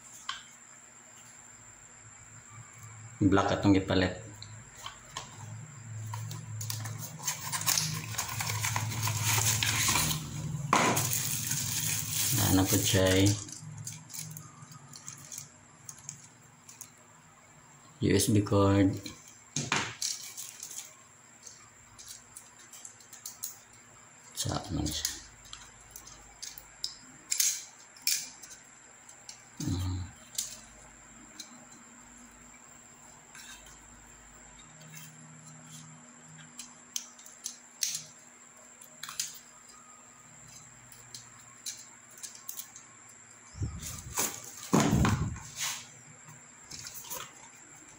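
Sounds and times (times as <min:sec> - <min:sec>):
steady low hum: 0:00.0 - 0:47.9
cardboard and plastic crinkling: 0:06.1 - 0:15.5, 0:43.8 - 0:45.9
loud plastic crackle: 0:06.2 - 0:16.2.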